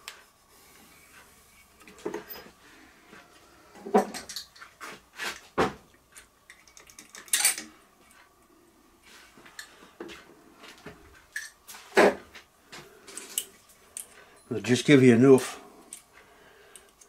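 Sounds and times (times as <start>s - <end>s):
metal parts clinking: 6.5s - 7.7s.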